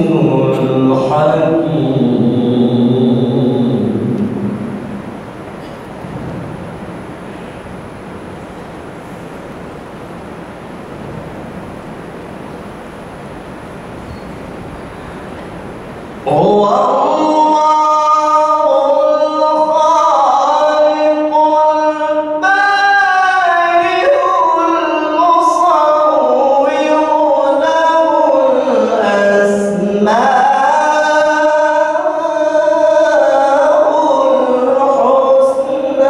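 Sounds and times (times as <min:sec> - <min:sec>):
man reciting melodically: 0:00.0 - 0:04.8, 0:16.1 - 0:36.0.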